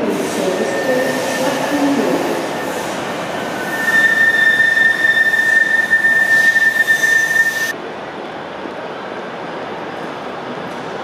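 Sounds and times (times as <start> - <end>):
tram wheels squealing: 0.0 - 7.7
tram running: 0.0 - 11.0.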